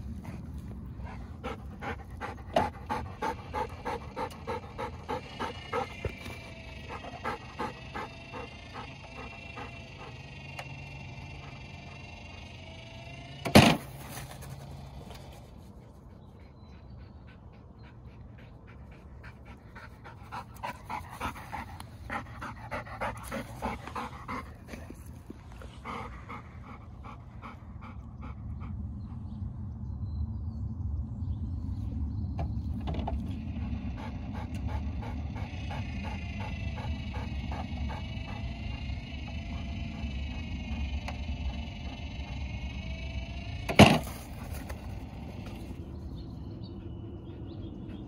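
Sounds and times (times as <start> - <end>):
dog panting: 0.0 - 12.3, 15.9 - 29.4, 33.6 - 40.8
steady whine: 0.0 - 16.1, 19.6 - 48.0.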